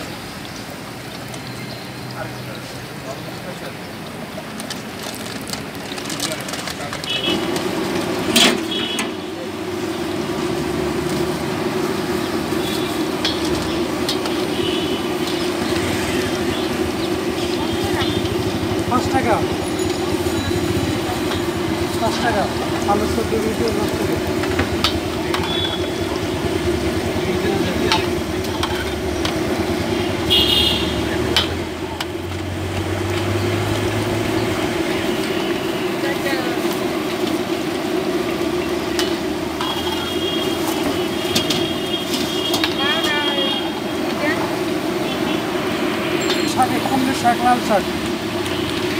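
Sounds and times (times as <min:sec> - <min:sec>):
oil sizzling in deep-frying: 0:00.0 - 0:48.9.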